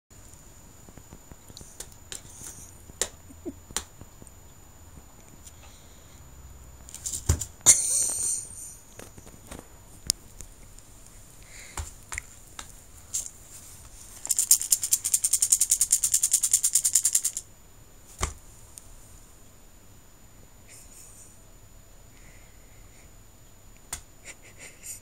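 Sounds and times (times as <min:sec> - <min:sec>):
beads rattling in a case: 0:14.2 - 0:17.4.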